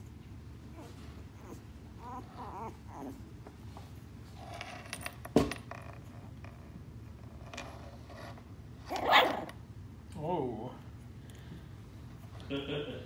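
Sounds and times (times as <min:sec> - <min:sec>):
puppies whimpering and squeaking: 0:00.7 - 0:03.3.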